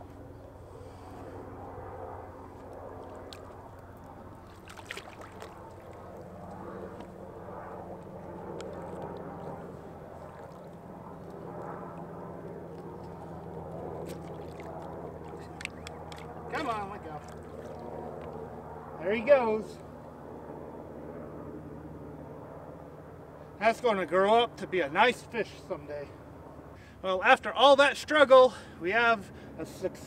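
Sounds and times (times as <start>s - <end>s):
steady low hum: 0.0s - 30.0s
water sloshing against rocky bank: 3.1s - 6.6s, 10.1s - 10.9s, 14.0s - 18.4s.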